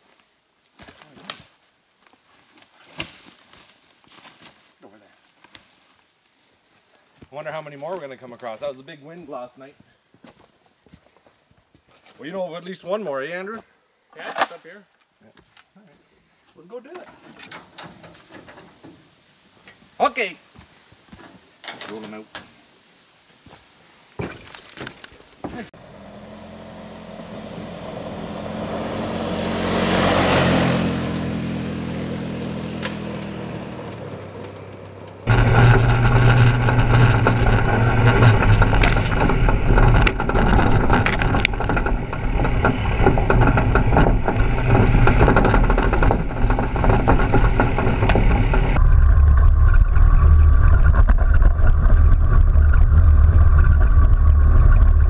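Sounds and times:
atv engine: 25.7s - 55.0s
trailer knocking and rattling: 35.3s - 55.0s.

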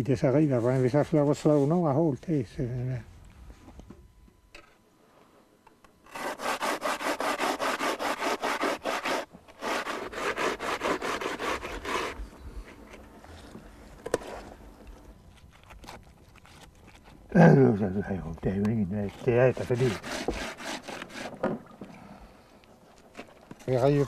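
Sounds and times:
potatoes rasping on grater: 19.3s - 21.2s.

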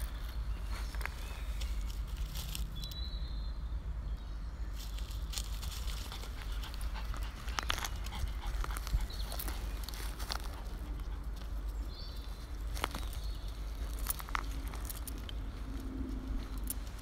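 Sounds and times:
paws crackling dry leaves: 0.0s - 3.1s, 4.7s - 17.0s
steady low rumble: 0.0s - 17.0s
dog sniffing: 5.9s - 11.8s.

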